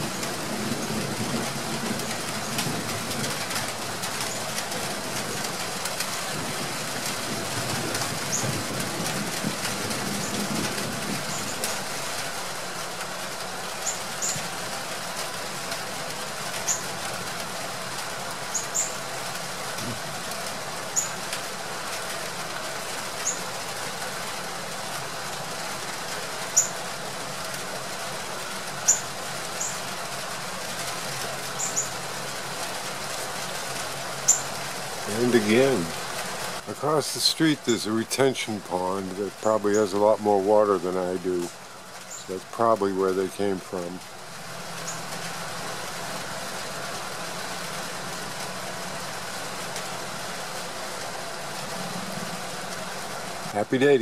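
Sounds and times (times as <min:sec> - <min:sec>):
rain hissing: 0:00.0 - 0:54.0
distant thunder rumbling: 0:06.2 - 0:11.7.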